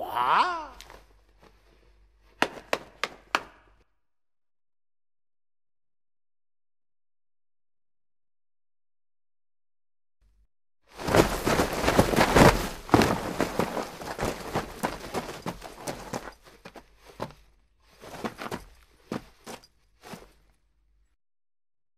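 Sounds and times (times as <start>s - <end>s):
footsteps crunching on gravel: 11.0s - 17.4s, 18.0s - 20.4s.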